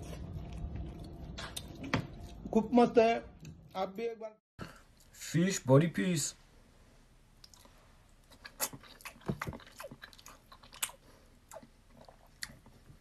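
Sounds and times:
person chewing food: 0:00.0 - 0:02.5, 0:07.4 - 0:13.0.

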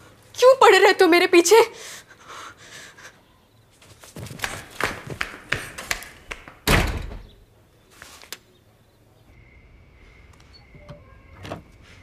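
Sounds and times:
door slamming shut: 0:06.6 - 0:07.4.

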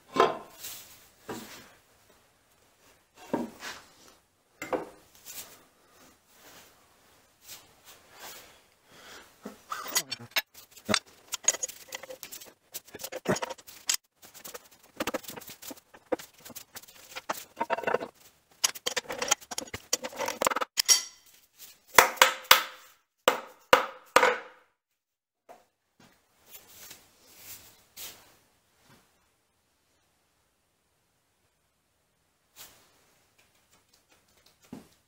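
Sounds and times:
metallic clinks and knocks: 0:09.8 - 0:21.4
fabric rubbing on microphone: 0:11.7 - 0:18.4.

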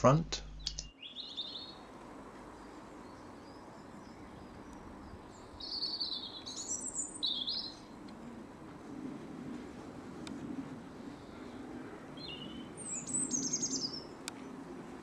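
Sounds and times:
songbird singing: 0:00.0 - 0:08.6, 0:10.9 - 0:14.7
faint outdoor background noise: 0:00.0 - 0:15.0.

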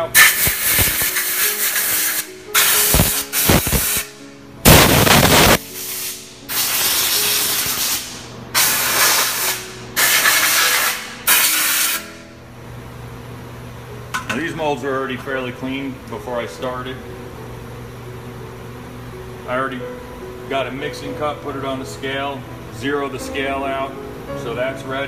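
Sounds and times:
air blow gun hissing bursts: 0:00.0 - 0:12.1.

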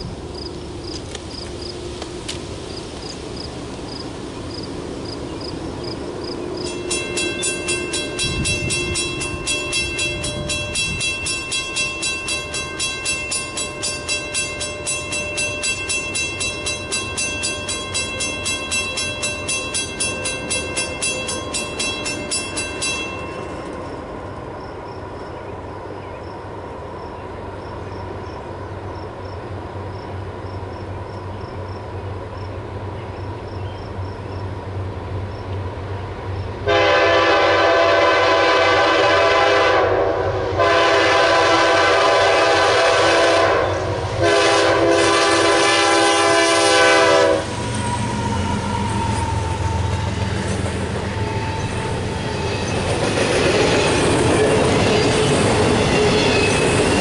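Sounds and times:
freight train rumble: 0:00.0 - 0:57.0
rhythmic ringing bell: 0:06.6 - 0:23.7
train horn blasts: 0:36.6 - 0:52.5.

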